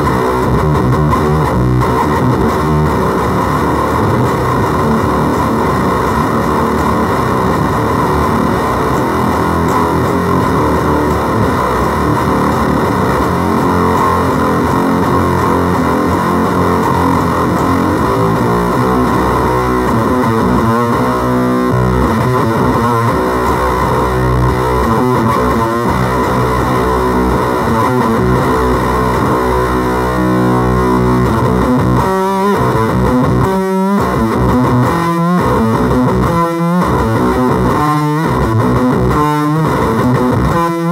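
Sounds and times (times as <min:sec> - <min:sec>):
distorted fuzz electric guitar: 0:00.0 - 0:40.9.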